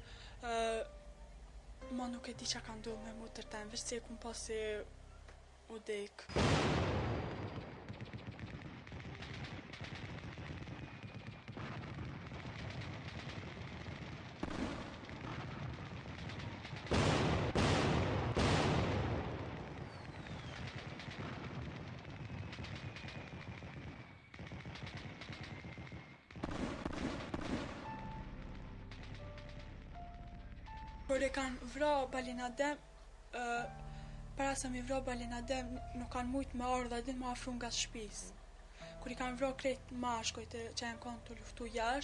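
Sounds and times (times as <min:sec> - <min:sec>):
automatic gunfire: 0:06.4 - 0:27.9.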